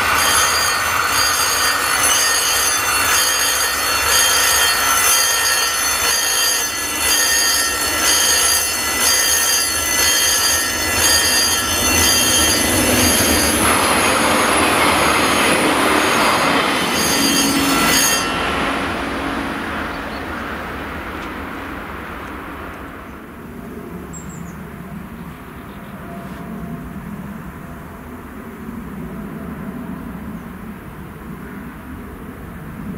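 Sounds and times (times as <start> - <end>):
level crossing bell ringing: 0.0 - 18.9
train passing: 0.0 - 32.9.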